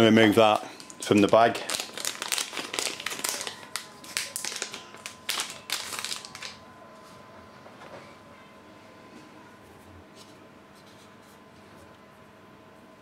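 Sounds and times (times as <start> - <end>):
plastic bag crinkling: 0.3 - 6.6.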